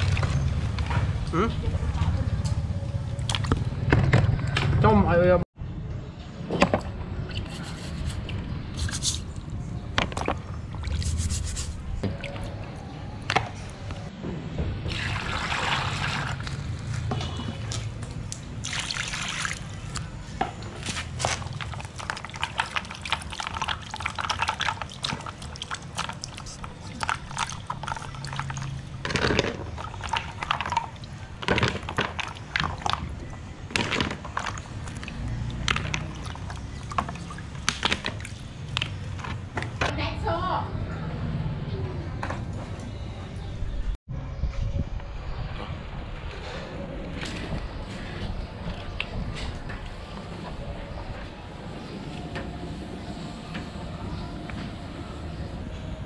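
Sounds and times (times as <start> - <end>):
water sloshing and splashing: 0.0 - 1.0, 3.1 - 4.3, 8.8 - 13.5, 14.9 - 39.9.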